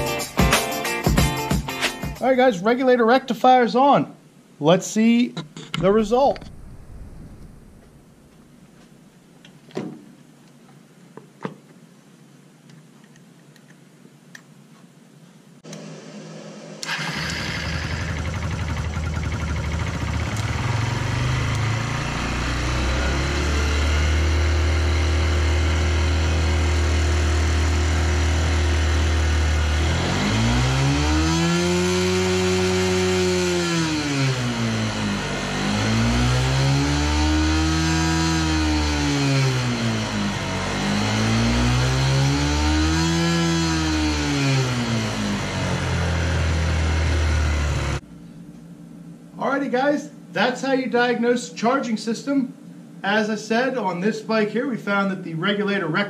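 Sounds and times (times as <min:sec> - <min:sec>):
motorcycle engine starting: 0:15.7 - 0:48.1
motorcycle engine revving: 0:15.9 - 0:48.0
motorcycle engine idling: 0:16.9 - 0:22.6.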